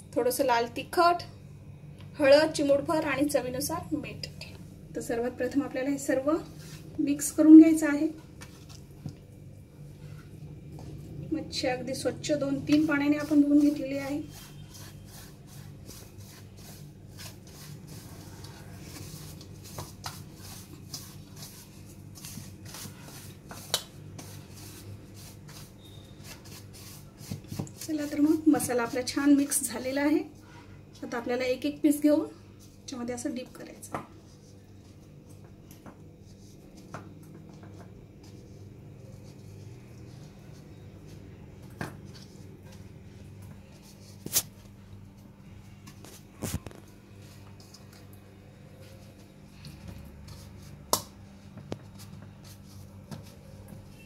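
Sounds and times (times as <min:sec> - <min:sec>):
steady low hum: 0:00.0 - 0:54.0
grains scraping steel bowl: 0:12.3 - 0:29.9
fingers spreading dry coating: 0:12.7 - 0:29.5.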